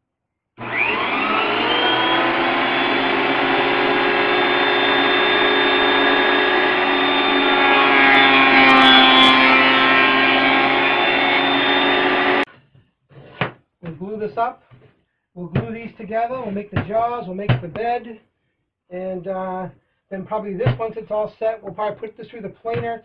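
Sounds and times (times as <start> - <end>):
thickness planer running: 0.6 - 12.5.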